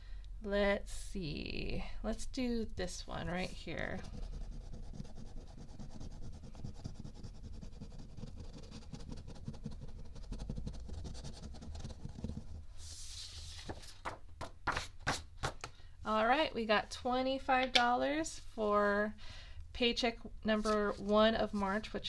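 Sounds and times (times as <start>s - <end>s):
paper brushing swish: 3.4s - 14.0s
scratching paper: 3.4s - 14.9s.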